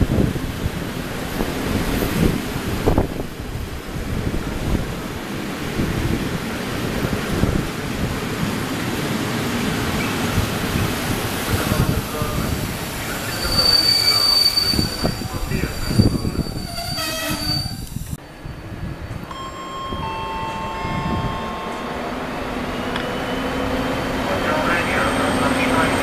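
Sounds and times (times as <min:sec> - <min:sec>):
train wheels rolling on track: 0:00.0 - 0:26.0
high wheel squeal: 0:13.0 - 0:18.6, 0:20.1 - 0:24.0.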